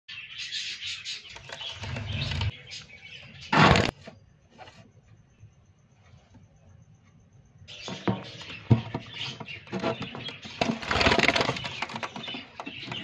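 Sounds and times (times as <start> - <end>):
budgerigars chattering and chirping: 0.1 - 3.5.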